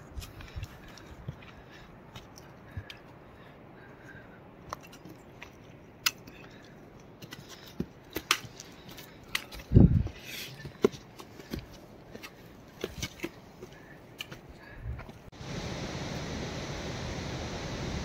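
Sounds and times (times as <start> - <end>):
footsteps on rock and dirt: 0.0 - 3.2, 4.6 - 15.3.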